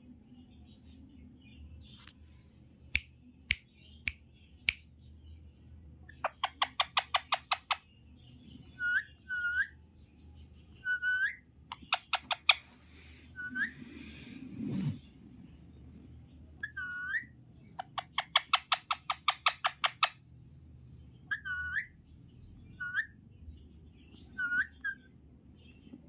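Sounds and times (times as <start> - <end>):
parakeet clicking: 6.3 - 7.8, 17.8 - 20.2
parakeet whistling: 8.8 - 9.8, 10.8 - 12.6, 13.4 - 14.0, 16.6 - 20.1, 21.3 - 22.0, 22.8 - 23.2, 24.3 - 25.1.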